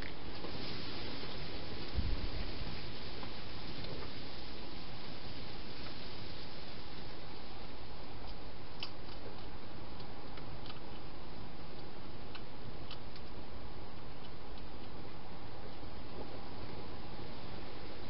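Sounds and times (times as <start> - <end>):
steady hiss: 0.0 - 18.0
hedgehog chewing with crunching clicks: 7.8 - 17.3.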